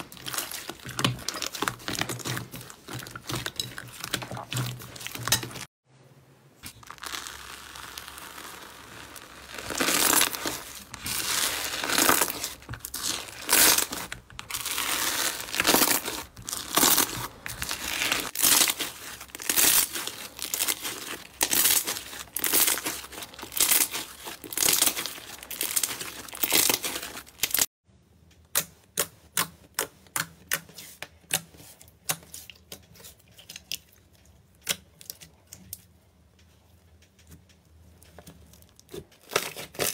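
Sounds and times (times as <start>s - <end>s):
slime squelching and crackling: 0.0s - 5.8s, 6.6s - 27.7s, 37.9s - 39.9s.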